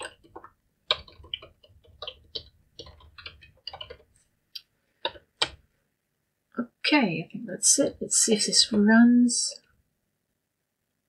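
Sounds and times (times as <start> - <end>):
keyboard typing: 0.0 - 5.6.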